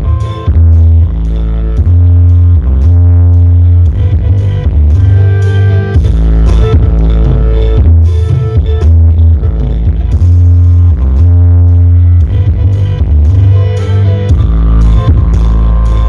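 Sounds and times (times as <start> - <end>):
loud bass-heavy music: 0.0 - 16.0.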